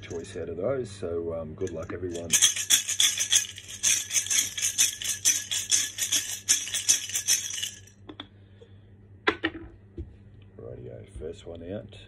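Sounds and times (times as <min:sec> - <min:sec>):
chips rattling in shaken container: 0:01.7 - 0:07.9.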